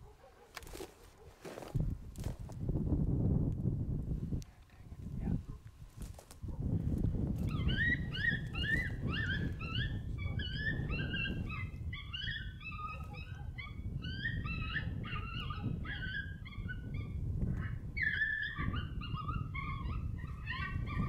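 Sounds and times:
wind rumble on microphone: 0.7s - 21.0s
coyotes yipping and howling: 6.4s - 21.0s.

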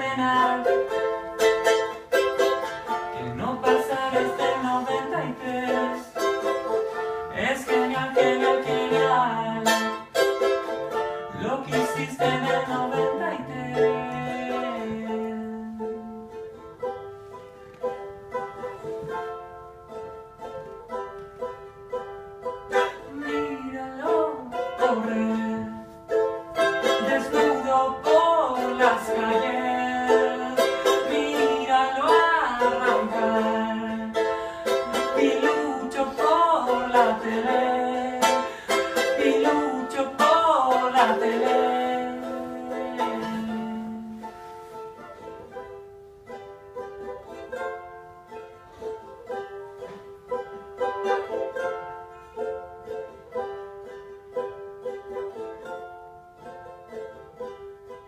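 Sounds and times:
person singing wordless melody: 0.0s - 17.0s, 22.7s - 45.2s
charango strummed and plucked: 0.0s - 58.0s.

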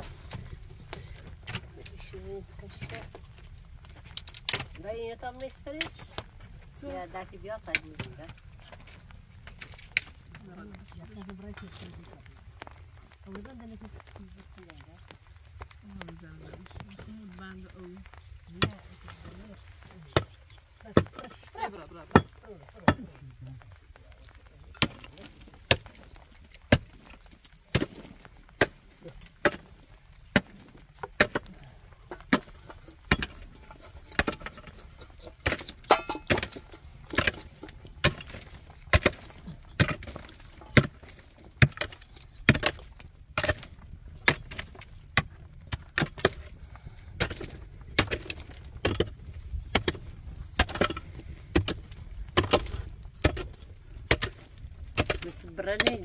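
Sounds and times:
small knocks: 24.4s - 46.6s
hand tool striking hard material: 32.1s - 46.5s, 47.2s - 56.0s.

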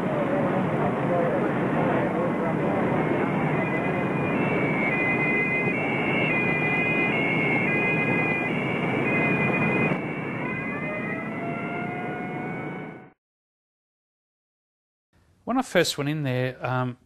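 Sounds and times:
two-tone siren: 0.0s - 13.2s
siren winding up: 3.0s - 13.2s.

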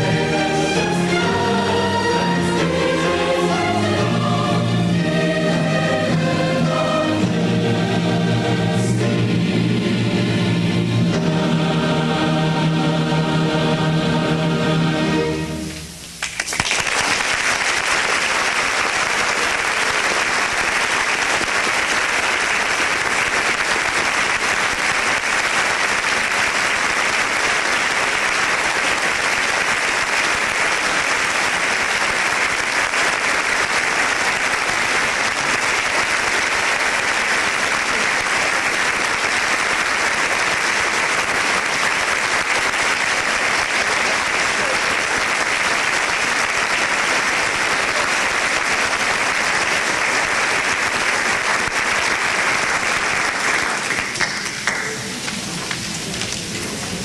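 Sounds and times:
large audience applauding: 16.2s - 57.0s.

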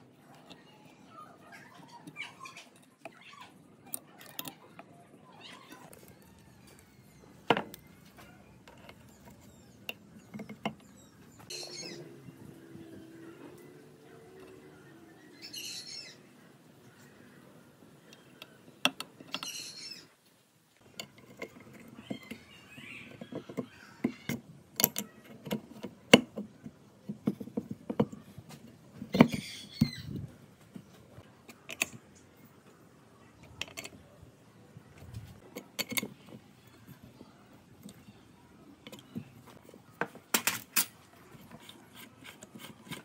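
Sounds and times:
bird chirping: 5.4s - 20.1s, 21.6s - 24.3s, 29.1s - 30.3s
tools and metal parts clicking: 5.8s - 11.5s, 20.8s - 28.1s, 31.4s - 32.2s, 33.4s - 34.0s, 35.4s - 37.0s.

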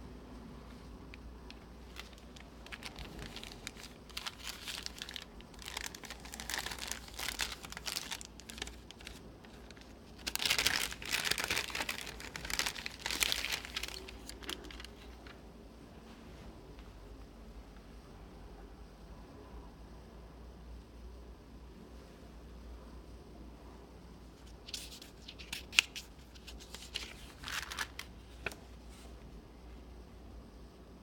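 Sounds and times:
packaging crinkling and rustling: 1.1s - 15.4s, 24.6s - 28.6s.

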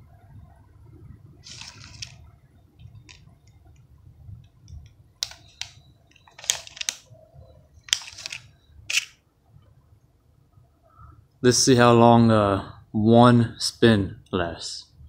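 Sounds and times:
faint low rumble: 0.0s - 6.2s.

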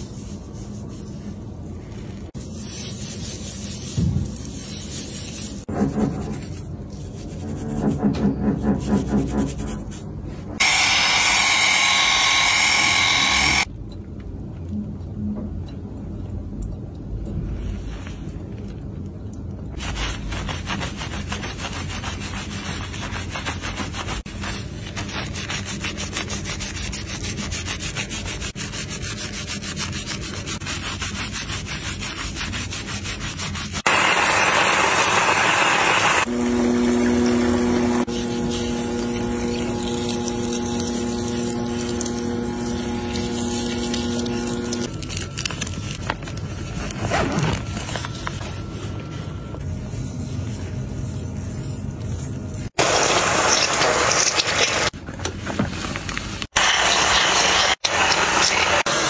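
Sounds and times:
hands scrubbing shampoo lather: 0.0s - 7.9s, 19.8s - 34.5s, 38.0s - 44.9s, 49.8s - 52.8s.

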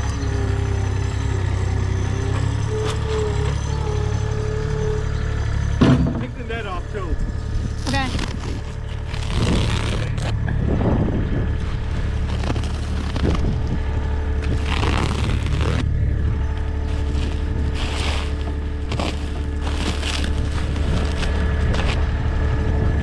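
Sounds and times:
machine humming: 0.0s - 23.0s
scraping and crunching: 5.7s - 22.4s.

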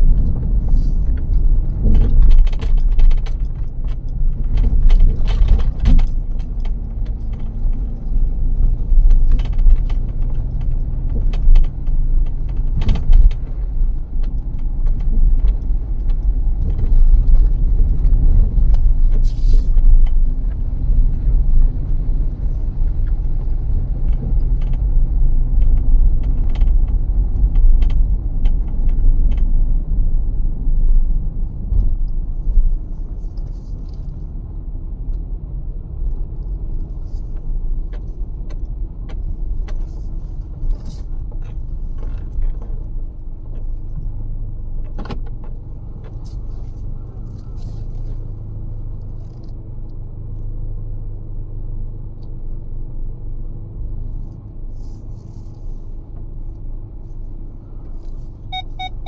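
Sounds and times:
car driving low rumble: 0.0s - 59.0s
short rattles and clicks: 0.2s - 20.7s.

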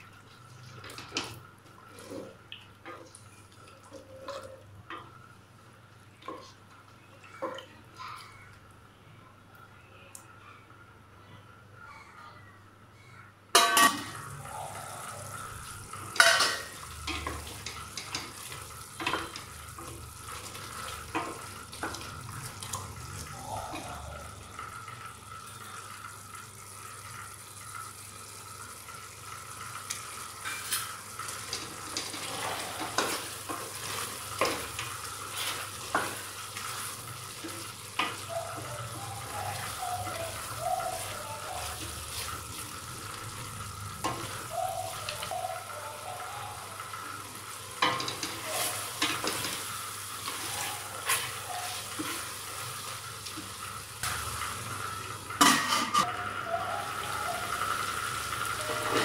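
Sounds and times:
curry sizzling and bubbling: 0.0s - 9.0s, 13.5s - 59.0s.

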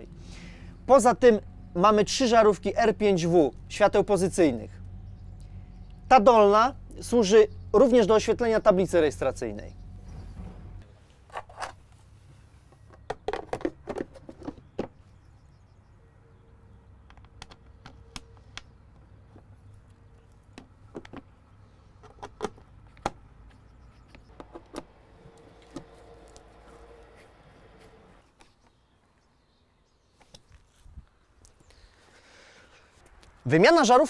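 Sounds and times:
plastic clicks and taps: 17.0s - 18.7s.

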